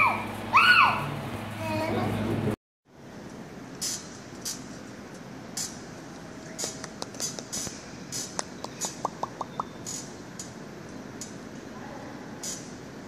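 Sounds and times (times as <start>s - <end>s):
taps and rustles on metal chair: 6.5s - 10.6s.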